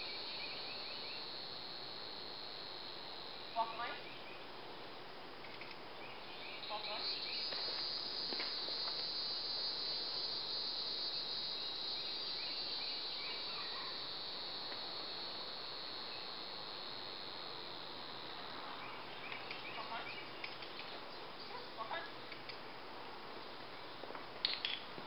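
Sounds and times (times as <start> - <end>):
insects trilling: 0.0 - 25.0.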